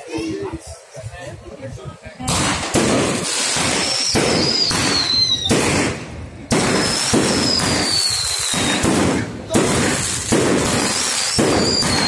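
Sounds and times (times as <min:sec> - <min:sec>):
fireworks bangs and crackle: 0:02.2 - 0:12.0.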